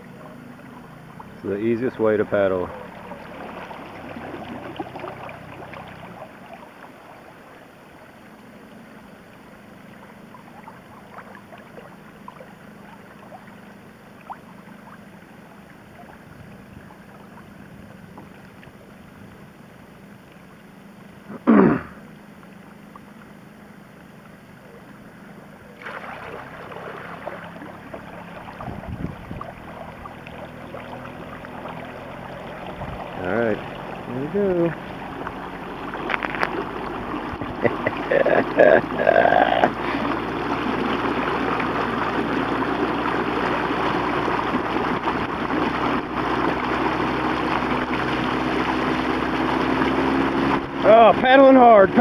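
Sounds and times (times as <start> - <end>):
water rushing along kayak hull: 0.0 - 21.4, 22.0 - 52.0
outboard motor hum: 0.0 - 52.0.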